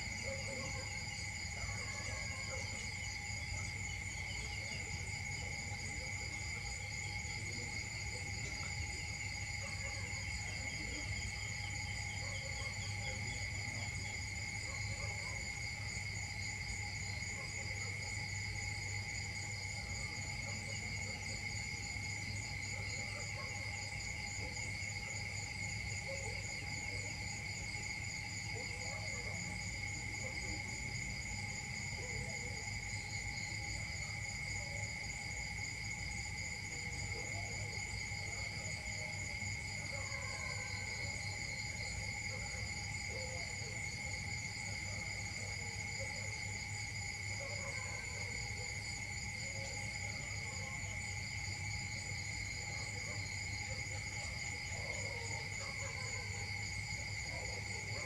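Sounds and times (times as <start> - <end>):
insects trilling: 0.0 - 58.0.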